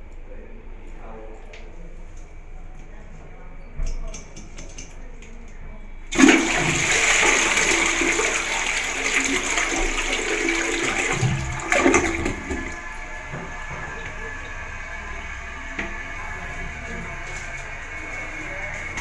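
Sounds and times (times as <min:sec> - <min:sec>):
toilet flushing: 0:06.1 - 0:19.0
water hissing: 0:06.1 - 0:19.0.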